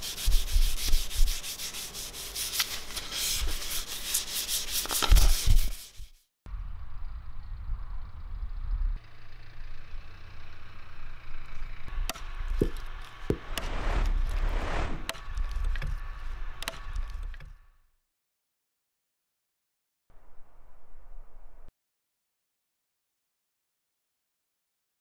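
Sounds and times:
low steady rumble: 0:06.5 - 0:17.2
hatchet chopping wood: 0:12.0 - 0:13.7.

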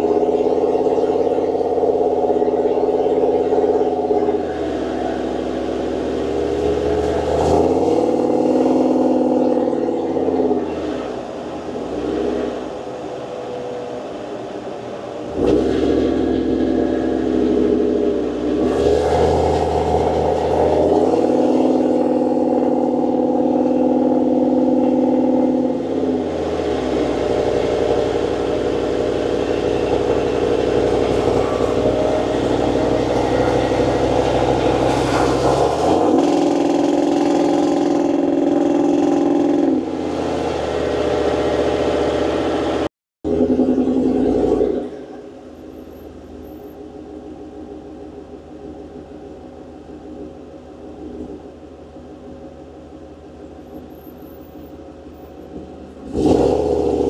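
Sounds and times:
engine revving inside vehicle: 0:00.0 - 0:12.8, 0:15.3 - 0:45.0, 0:55.6 - 0:57.0.

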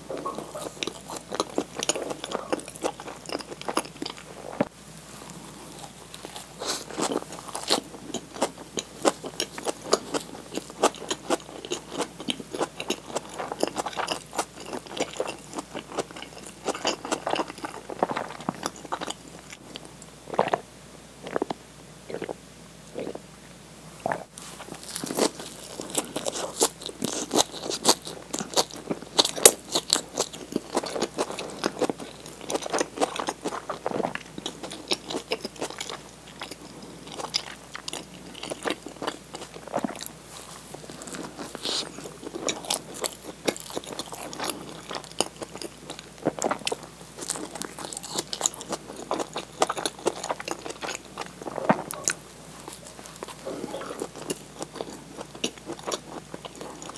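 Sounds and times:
crunchy chewing: 0:00.0 - 0:20.6, 0:21.2 - 0:23.2, 0:24.0 - 0:56.9
person gulping a drink: 0:21.2 - 0:23.2, 0:52.8 - 0:54.8.

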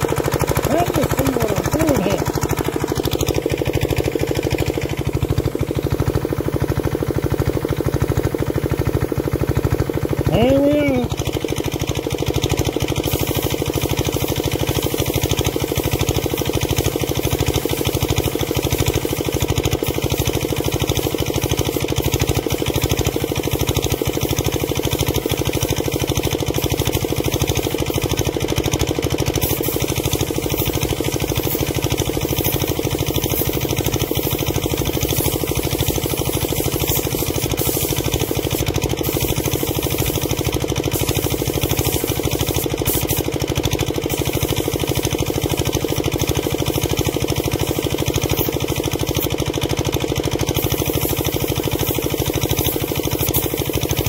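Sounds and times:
spray gun hissing: 0:00.0 - 0:08.4, 0:13.0 - 0:28.4, 0:29.2 - 0:49.4, 0:50.4 - 0:54.0
air compressor running: 0:00.0 - 0:54.0.

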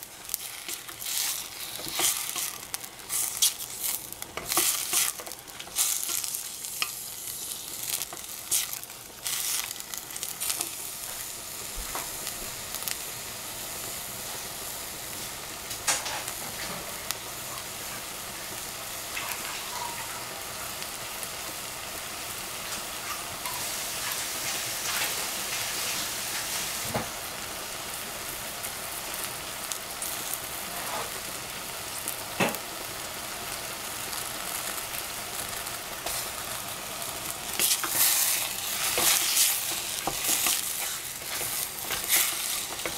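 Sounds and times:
vegetables sizzling in a pan: 0:00.0 - 0:42.9
wooden spatula scraping a pan: 0:00.4 - 0:06.9, 0:30.7 - 0:31.2, 0:37.5 - 0:42.9.

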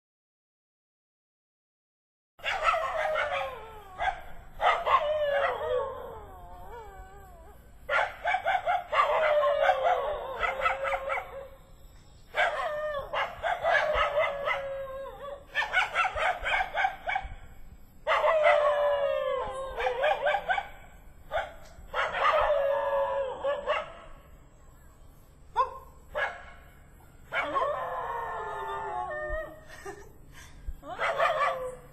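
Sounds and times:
dog howling: 0:02.6 - 0:07.6, 0:08.6 - 0:11.6, 0:12.4 - 0:15.6, 0:18.1 - 0:20.6, 0:27.3 - 0:29.6.

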